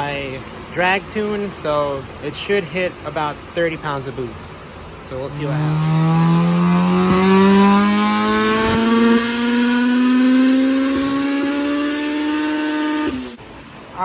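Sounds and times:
car engine revving at full throttle: 5.1s - 13.4s.

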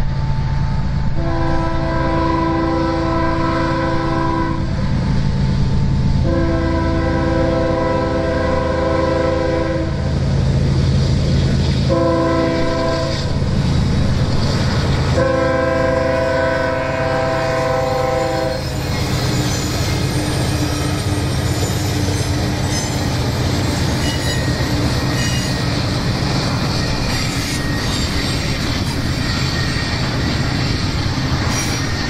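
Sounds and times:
locomotive air horn: 1.1s - 4.8s, 6.2s - 10.1s, 11.9s - 13.4s, 15.2s - 19.0s
train wheels rolling on rails: 3.1s - 32.0s.

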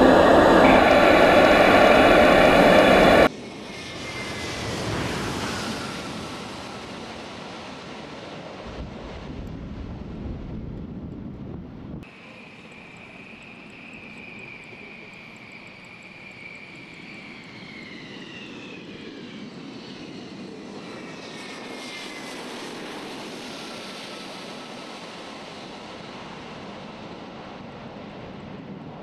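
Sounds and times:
jet engines whining and rushing: 0.0s - 29.0s.

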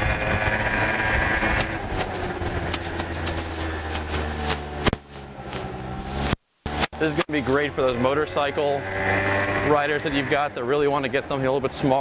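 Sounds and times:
scooter engine running: 0.0s - 11.1s
crackling noise: 0.4s - 7.6s.

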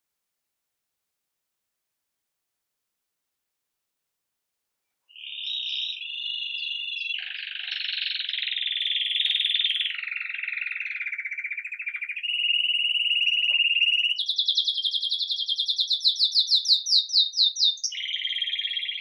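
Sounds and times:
canary singing rolled trills: 5.1s - 19.0s.

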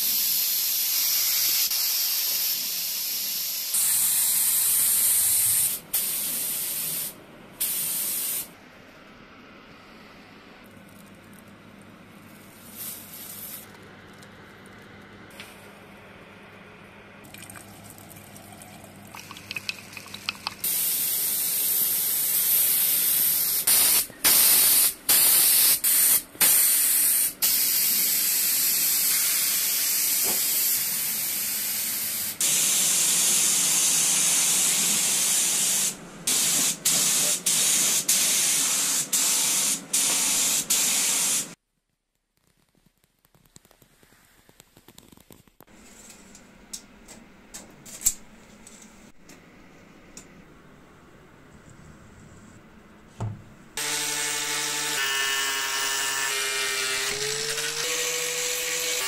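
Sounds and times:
spray gun air hiss: 0.0s - 8.5s, 20.6s - 41.6s.

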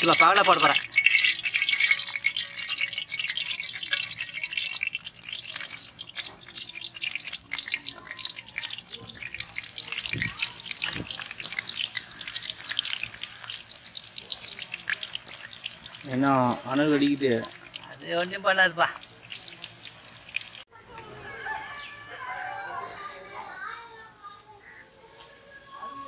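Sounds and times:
batter sizzling in hot oil: 0.0s - 20.7s.

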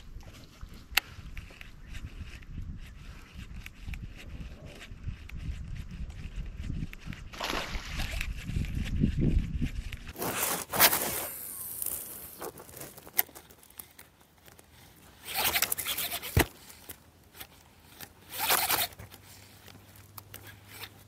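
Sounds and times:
fishing line zipping off reel: 6.9s - 8.4s, 10.2s - 12.4s, 15.2s - 16.5s, 18.2s - 19.0s.

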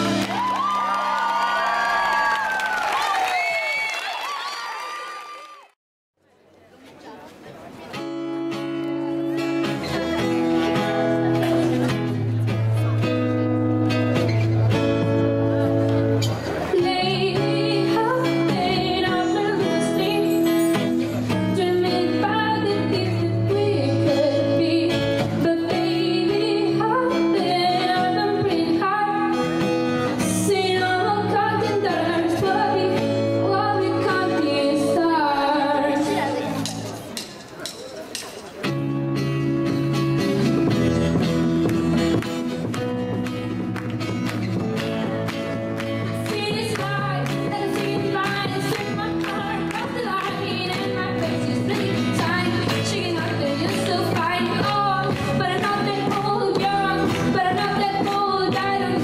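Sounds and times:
acoustic guitar: 0.0s - 0.9s, 7.6s - 59.0s
woman singing: 16.7s - 29.5s, 30.2s - 36.5s, 46.2s - 59.0s
drums: 36.3s - 59.0s.

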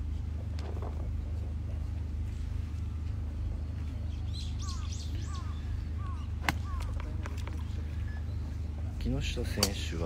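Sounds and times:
low mechanical hum: 0.0s - 10.0s.

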